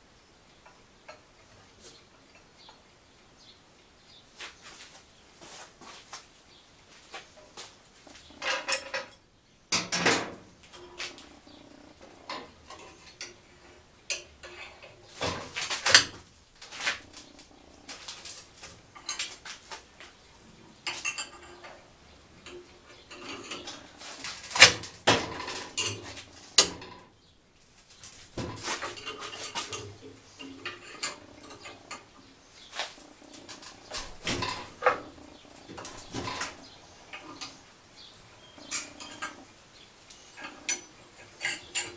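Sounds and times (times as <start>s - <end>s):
metal objects clinking together: 8.4s - 9.2s.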